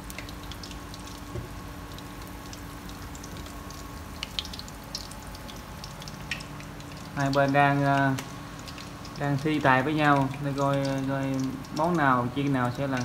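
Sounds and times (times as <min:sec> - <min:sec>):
deep-frying sizzle in oil: 0:00.0 - 0:13.0.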